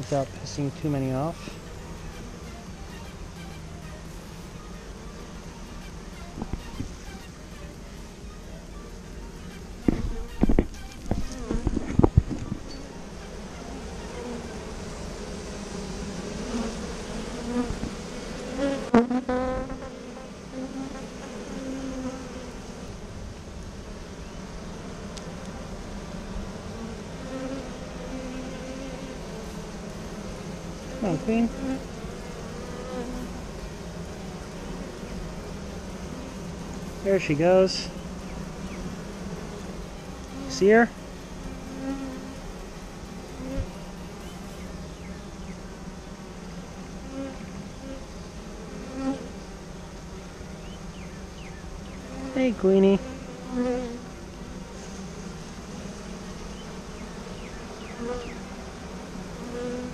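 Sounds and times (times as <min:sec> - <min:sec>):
bees buzzing: 0:00.0 - 0:59.9
honeybee swarm humming: 0:00.0 - 0:59.9
single bee passing close: 0:00.0 - 0:59.9.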